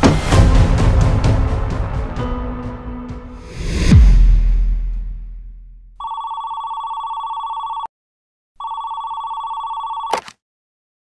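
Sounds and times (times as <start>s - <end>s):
low rumble: 0.0s - 6.0s
telephone ringing: 6.0s - 7.9s, 8.6s - 10.4s
phone pickup click: 10.0s - 10.4s.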